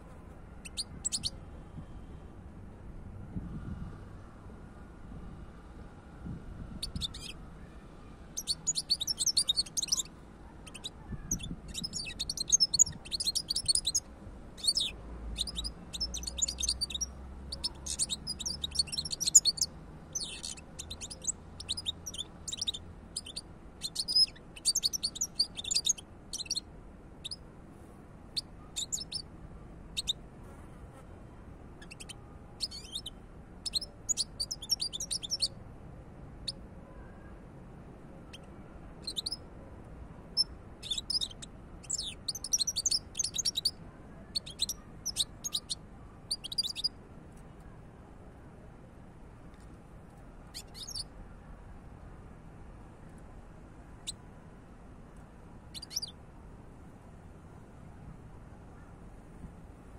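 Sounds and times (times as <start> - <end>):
finch twittering song: 0.6 - 1.4, 6.8 - 7.4, 8.3 - 26.6, 28.4 - 29.2, 31.8 - 35.6, 38.3 - 39.4, 40.3 - 46.9, 50.5 - 51.1, 55.7 - 56.2.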